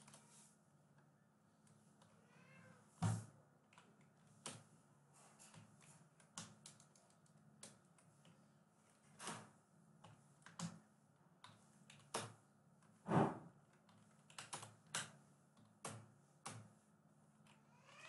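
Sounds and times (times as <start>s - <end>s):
keyboard keystrokes: 13.8s - 15.1s.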